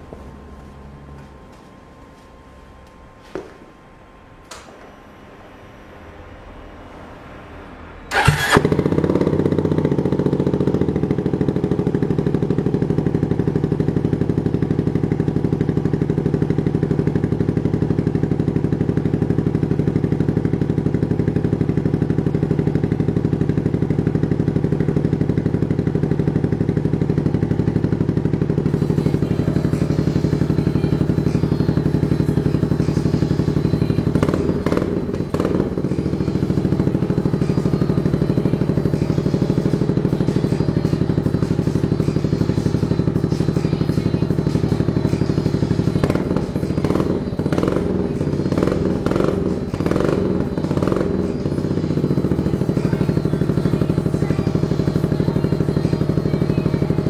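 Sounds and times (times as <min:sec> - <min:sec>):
scooter engine starting and idling: 0:04.3 - 0:57.0.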